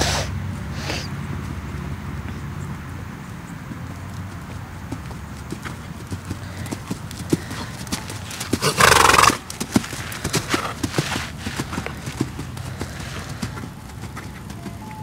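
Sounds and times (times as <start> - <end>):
horse blowing breathily: 0.0 - 1.1, 6.4 - 9.5
horse hoofbeats trotting on sand: 0.1 - 15.0.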